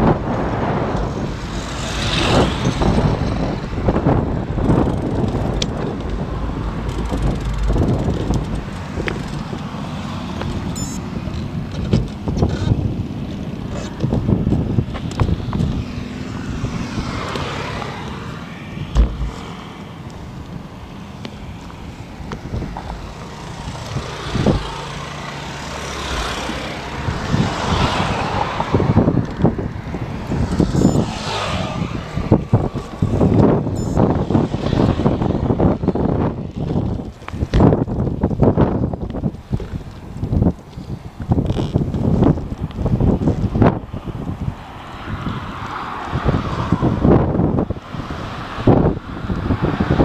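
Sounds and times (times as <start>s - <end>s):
low rumble: 0.0s - 9.7s, 18.1s - 20.9s
road traffic passing: 0.0s - 50.0s
wind rumbling on microphone: 0.0s - 50.0s
thump: 18.9s - 19.4s.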